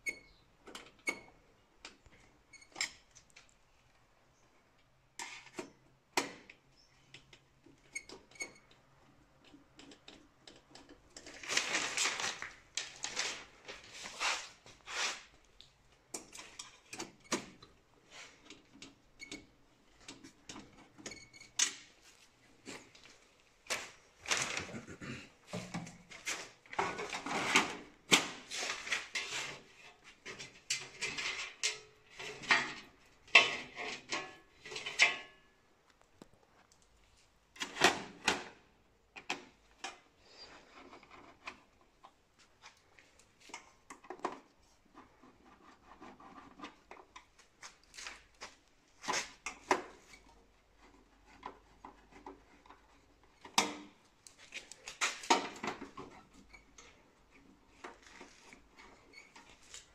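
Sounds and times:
clicks and rattles of cover parts: 30.2s - 35.4s.

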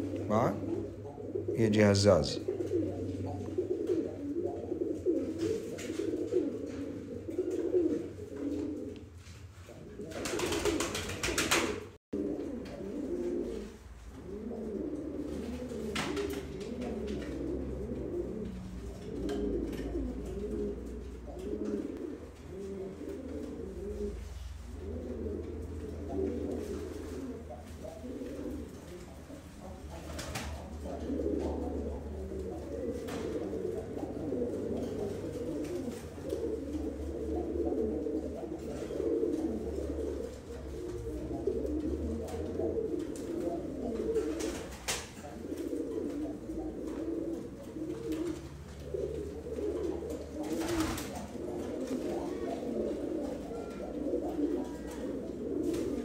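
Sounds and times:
pigeons cooing: 0.0s - 56.0s.

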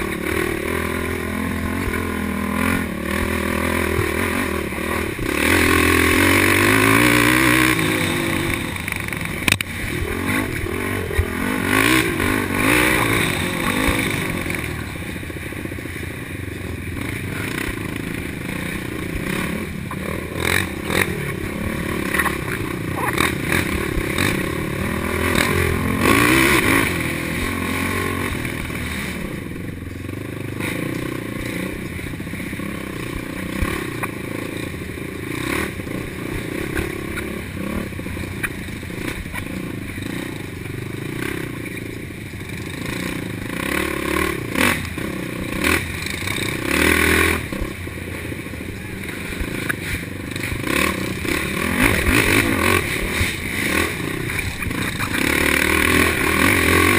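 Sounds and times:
quad engine revving: 0.0s - 56.9s.

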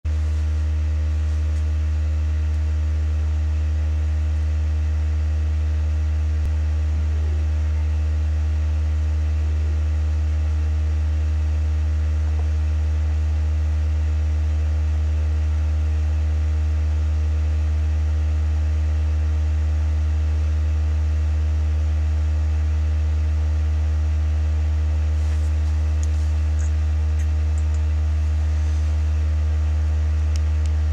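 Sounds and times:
vibration shaker humming: 0.1s - 7.4s, 24.6s - 30.9s.

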